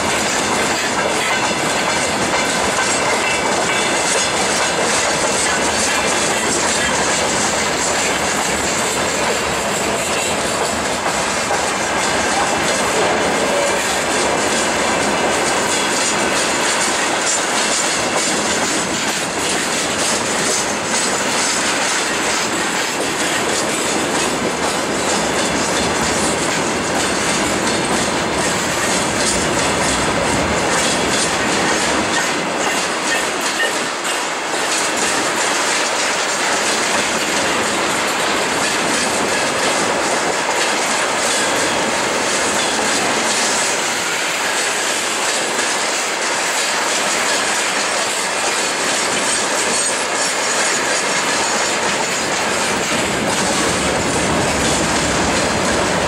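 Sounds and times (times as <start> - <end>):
train wheels clattering on rails: 0.0 - 56.0.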